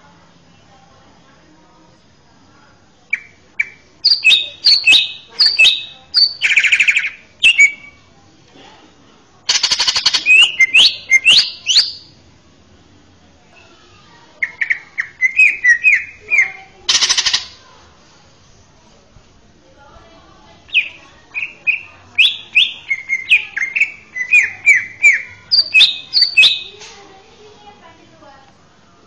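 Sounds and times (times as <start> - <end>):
bird singing: 3.1 - 8.0, 9.5 - 12.2, 14.4 - 17.6, 20.7 - 26.9.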